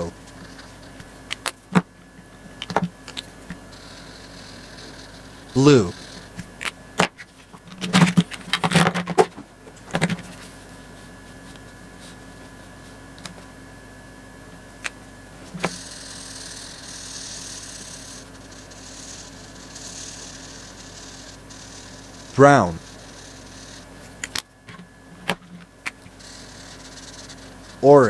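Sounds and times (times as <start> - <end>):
marker scratching on paper: 3.7 - 6.4, 15.6 - 24.0, 26.1 - 27.8.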